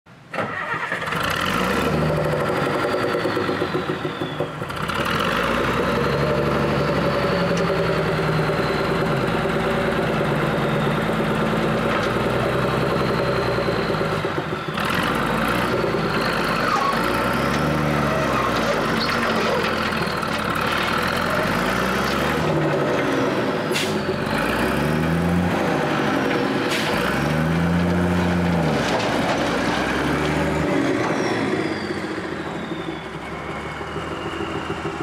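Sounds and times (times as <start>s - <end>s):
dump truck diesel engine: 0.1s - 35.0s.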